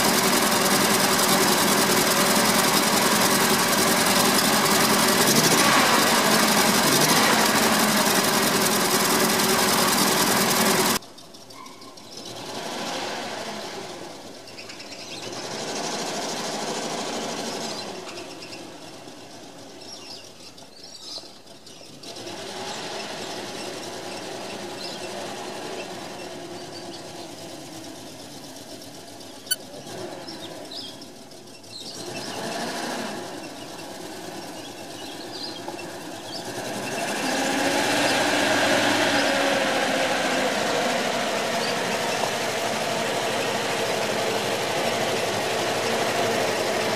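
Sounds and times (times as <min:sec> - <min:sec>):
truck engine running: 0:00.0 - 0:11.4, 0:33.3 - 0:46.9.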